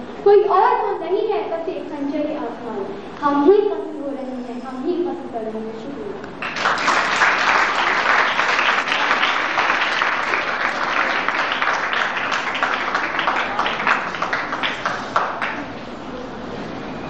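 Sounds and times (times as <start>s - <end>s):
audience applauding: 6.4s - 15.8s.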